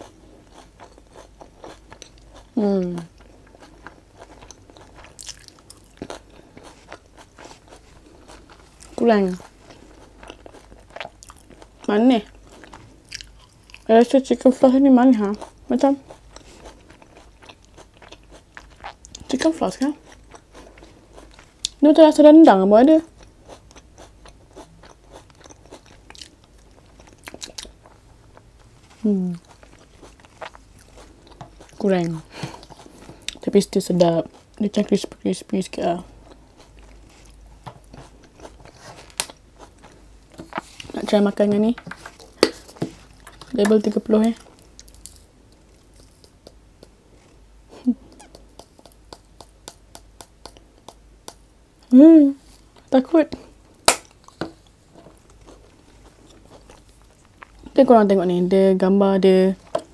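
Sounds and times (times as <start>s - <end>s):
chewing crunches: 0.0s - 14.2s, 15.2s - 21.8s, 23.1s - 33.5s, 36.1s - 41.0s, 41.9s - 47.4s, 53.8s - 57.8s
wet mouth clicks: 48.1s - 51.4s.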